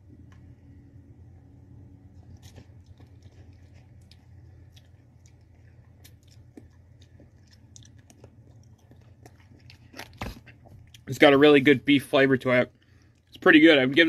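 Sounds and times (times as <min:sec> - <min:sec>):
person chewing and slurping noodles: 0:01.9 - 0:11.1.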